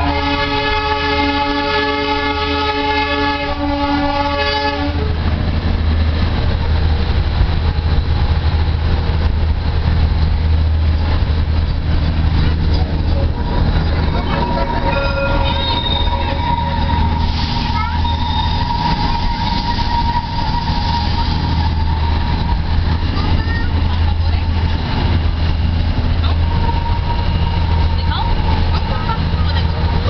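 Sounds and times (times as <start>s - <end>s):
train horn: 0.0s - 5.2s, 14.0s - 22.7s, 26.3s - 29.7s
train rumbling: 0.0s - 30.0s.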